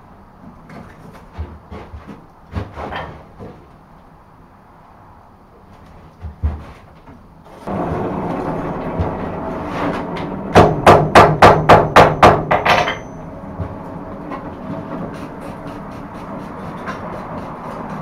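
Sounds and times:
steady rushing noise: 0:07.6 - 0:18.0
hammer ringing on anvil: 0:10.6 - 0:13.3.

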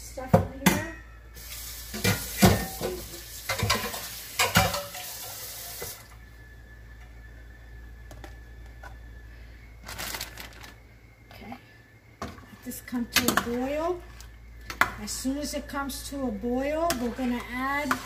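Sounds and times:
water running: 0:01.4 - 0:06.2
pots and utensils clattering: 0:01.9 - 0:06.0.

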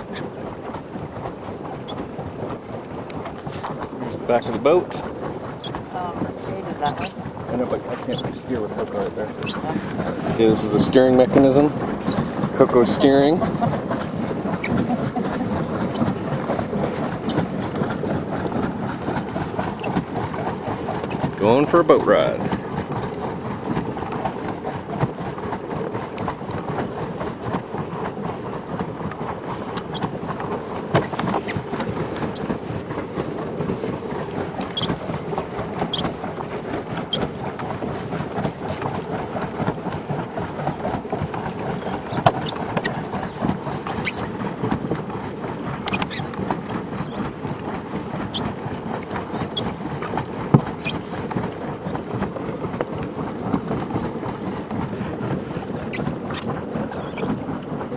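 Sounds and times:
paddle wheel churning water: 0:00.0 - 0:57.9
small clicks and squeaks: 0:06.8 - 0:07.2, 0:08.1 - 0:08.4, 0:09.4 - 0:09.7, 0:12.0 - 0:12.3, 0:14.6 - 0:14.8, 0:17.2 - 0:17.5, 0:19.8 - 0:20.0, 0:29.8 - 0:30.1, 0:34.7 - 0:35.0, 0:35.8 - 0:36.1, 0:41.8 - 0:43.4, 0:44.0 - 0:44.3, 0:45.8 - 0:46.3, 0:48.2 - 0:48.5, 0:49.4 - 0:49.7, 0:50.8 - 0:51.0, 0:55.9 - 0:57.4.

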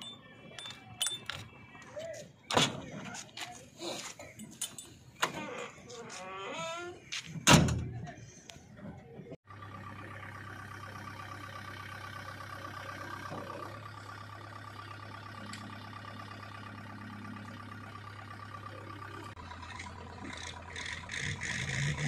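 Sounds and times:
diesel engine running: 0:09.4 - 0:22.0.

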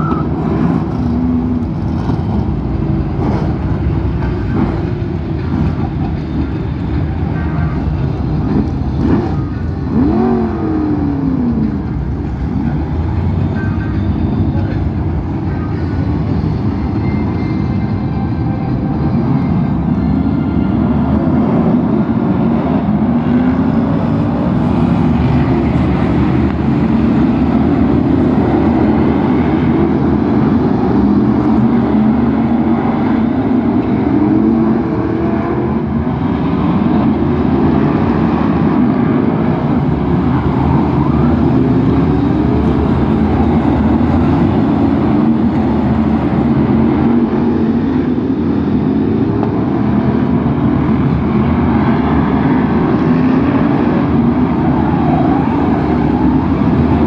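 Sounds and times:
racing car engines revving past: 0:07.7 - 0:13.4.

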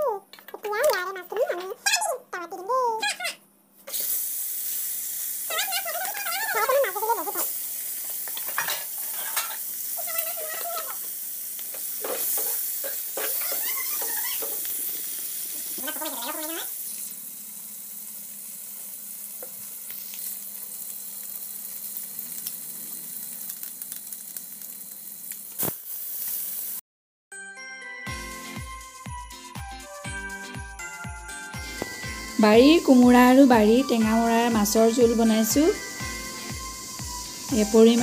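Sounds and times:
fish sizzling in hot oil: 0:03.9 - 0:26.8, 0:31.6 - 0:38.0
spatula scraping pan: 0:08.1 - 0:09.6.

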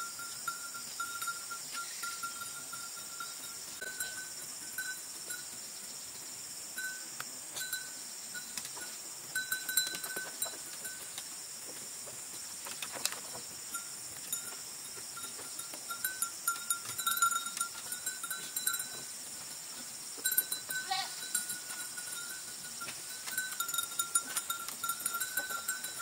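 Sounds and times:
thin ringing tone: 0:00.0 - 0:05.5, 0:06.8 - 0:11.1, 0:20.2 - 0:26.0
forest insects droning: 0:00.0 - 0:26.0.

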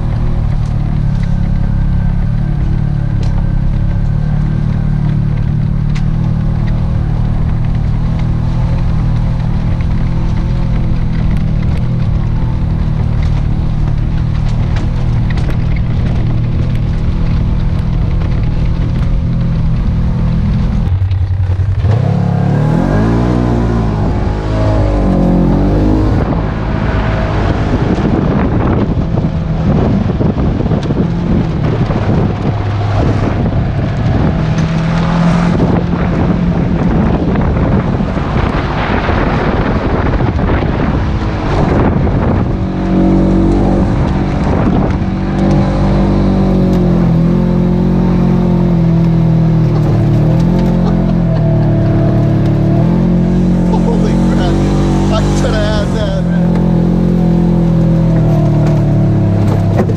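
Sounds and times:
engine revving: 0:00.0 - 0:59.9
tyre and wind noise: 0:00.0 - 0:59.9.

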